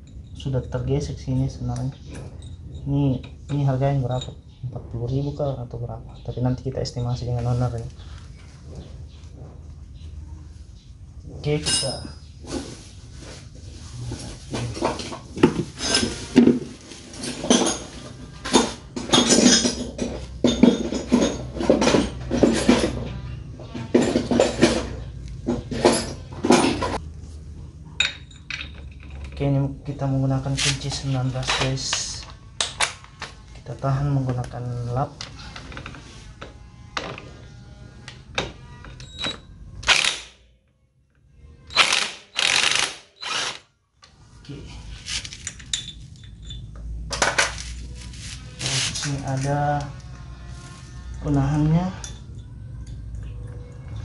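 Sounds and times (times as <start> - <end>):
metal tools clinking: 0.0 - 4.6, 11.4 - 12.4, 14.5 - 16.4, 17.1 - 27.0, 28.0 - 29.5, 45.0 - 47.8, 51.9 - 53.8.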